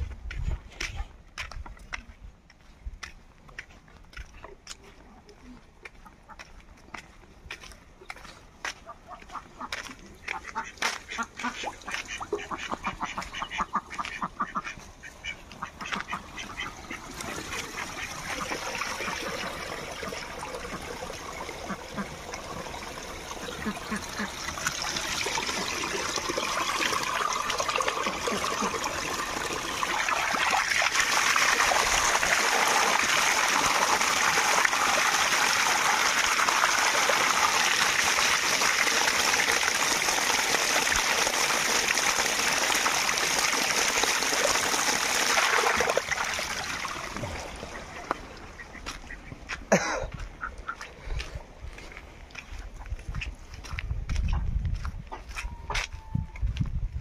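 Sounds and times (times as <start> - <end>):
running water rushing: 7.5 - 49.4
ducks quacking: 8.7 - 22.7, 23.3 - 31.2, 47.5 - 51.4.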